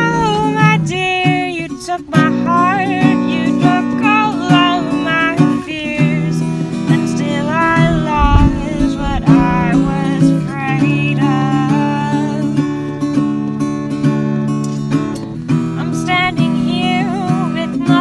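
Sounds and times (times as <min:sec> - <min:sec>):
person singing wordless melody: 0:00.0 - 0:13.2, 0:15.7 - 0:18.0
acoustic guitar strumming chords: 0:00.0 - 0:18.0
low thump: 0:07.8 - 0:10.1.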